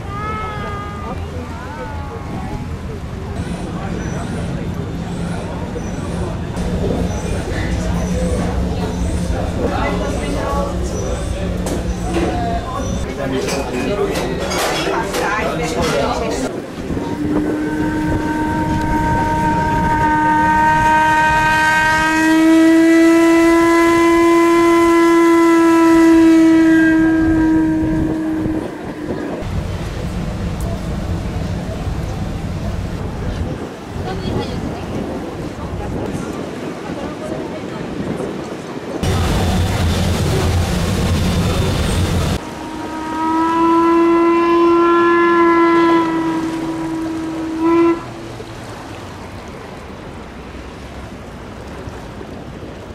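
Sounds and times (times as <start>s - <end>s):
ship horn long blast: 0.0s - 14.2s, 15.0s - 33.9s, 39.0s - 50.9s
low rumble: 6.3s - 13.1s, 26.5s - 33.9s, 39.0s - 49.8s.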